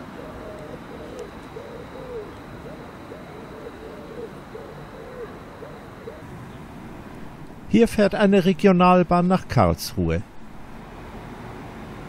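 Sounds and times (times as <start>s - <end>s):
pigeons cooing: 0.0s - 6.8s
low background hum: 0.0s - 12.0s.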